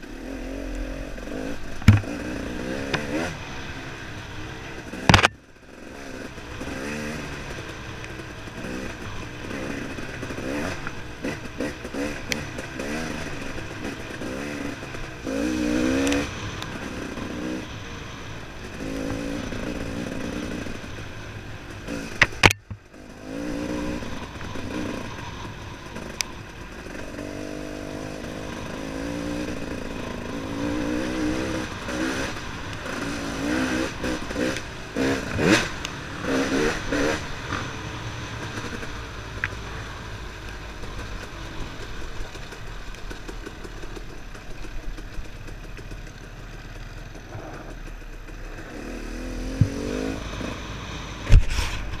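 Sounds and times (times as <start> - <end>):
motorcycle engine revving: 0.0 - 52.0
sharp clattering knocks: 1.8 - 2.2, 5.0 - 5.4.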